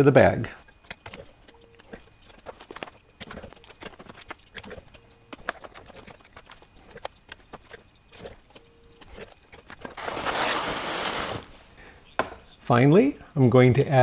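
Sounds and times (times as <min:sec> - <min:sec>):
foil pouches crinkling: 0:10.0 - 0:11.6.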